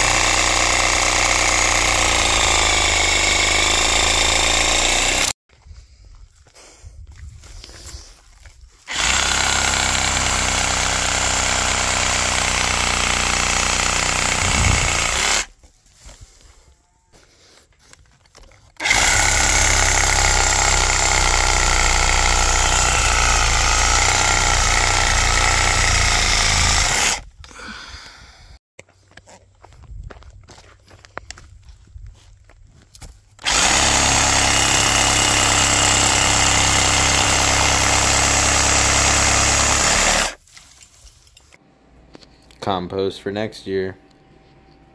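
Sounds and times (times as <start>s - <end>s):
reciprocating saw cutting stalks: 0.0s - 5.4s, 8.8s - 16.3s, 18.7s - 27.3s, 33.3s - 40.6s.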